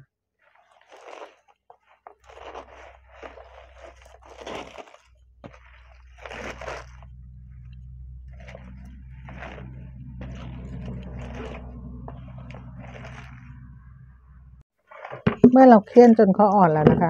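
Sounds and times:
greens crunching and squeaking: 0.4 - 14.1
steady low hum: 6.4 - 14.6.

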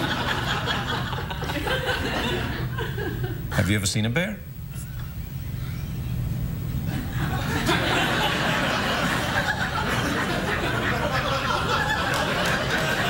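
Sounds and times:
audience laughing: 0.0 - 3.5, 6.9 - 13.0.

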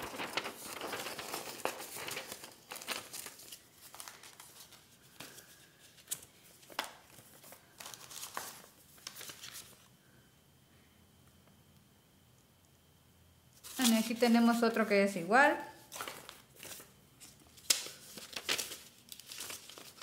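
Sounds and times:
paper and plastic packaging crinkling: 0.0 - 9.9, 13.6 - 14.9, 15.8 - 20.0.

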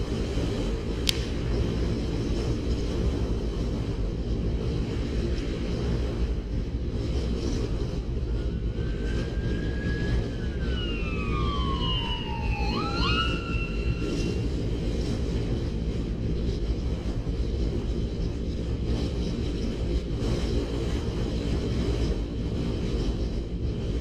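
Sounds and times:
wind rushing over microphone: 0.0 - 24.0
whistling tone: 8.9 - 14.5.

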